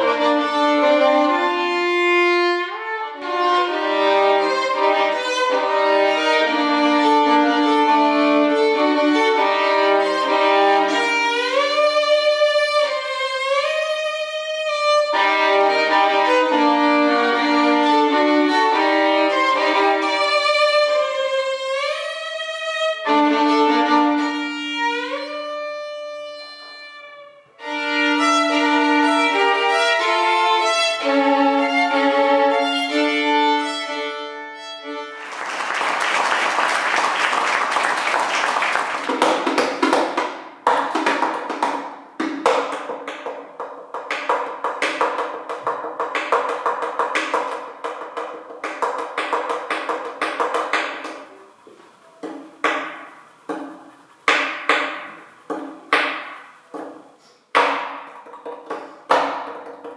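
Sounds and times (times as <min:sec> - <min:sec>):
plucked violin notes: 0:00.0 - 0:35.2
bowed violin melody: 0:00.0 - 0:35.5
rapid violin notes: 0:00.0 - 0:36.0.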